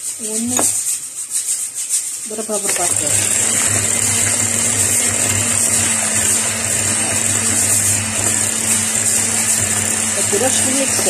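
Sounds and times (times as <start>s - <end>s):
electric hand mixer running: 2.6s - 11.0s.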